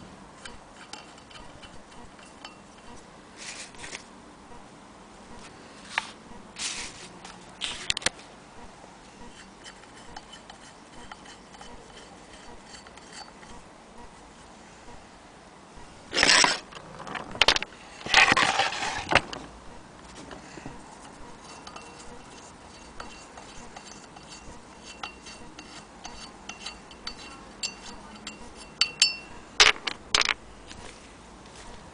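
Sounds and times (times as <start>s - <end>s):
hand crank wheel ticking and squeaking: 9.3s - 13.5s, 21.4s - 29.2s.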